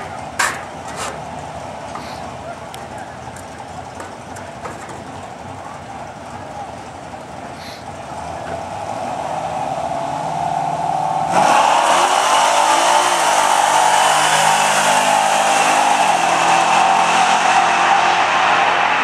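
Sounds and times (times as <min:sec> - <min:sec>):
pickup engine revving and accelerating: 0:08.0 - 0:19.0.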